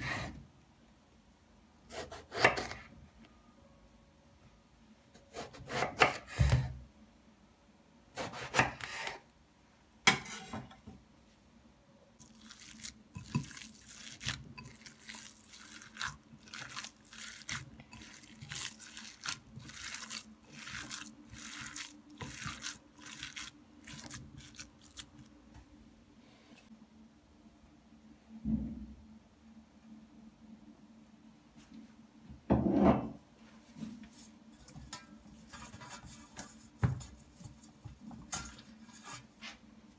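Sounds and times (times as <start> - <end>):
hands kneading raw meat squishing: 12.2 - 25.3.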